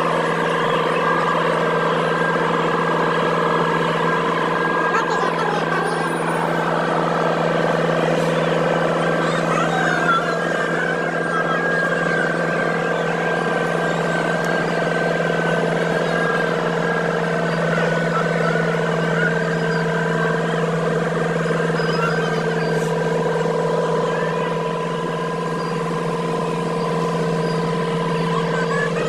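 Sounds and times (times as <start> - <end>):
diesel engine droning: 0.0 - 29.0.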